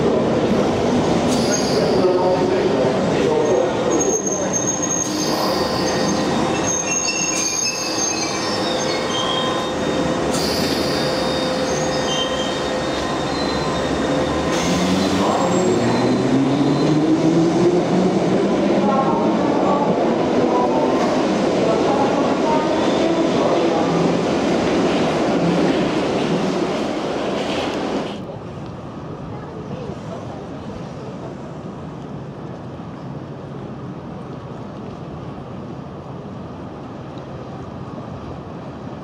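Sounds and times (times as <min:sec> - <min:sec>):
train wheels squealing on rails: 0:01.1 - 0:02.5, 0:03.2 - 0:17.2.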